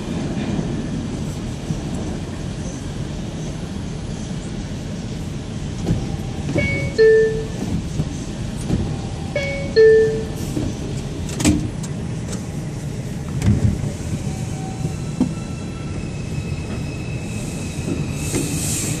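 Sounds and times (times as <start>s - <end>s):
train wheels rumbling: 0.0s - 19.0s
tunnel hiss: 17.2s - 19.0s.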